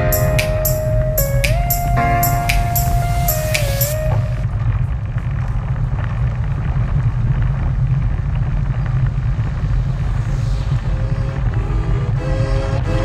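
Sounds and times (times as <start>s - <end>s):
faint music: 0.0s - 4.5s
wind noise: 2.0s - 13.0s.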